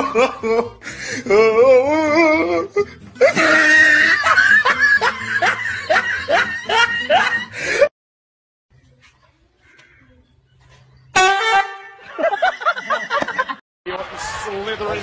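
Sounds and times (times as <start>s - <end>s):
person laughing hard: 0.0s - 7.9s, 11.9s - 13.6s.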